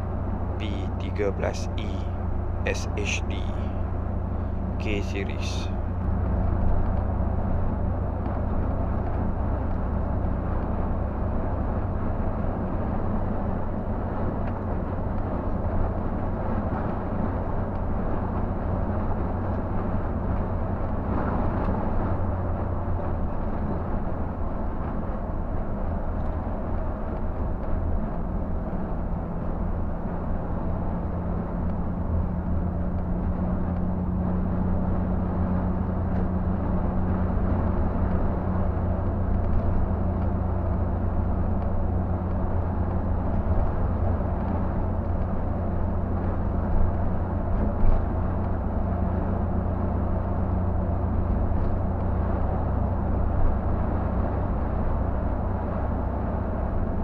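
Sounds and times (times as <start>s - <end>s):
diesel engine drone: 0.0s - 57.0s
tyre and road noise: 0.0s - 57.0s.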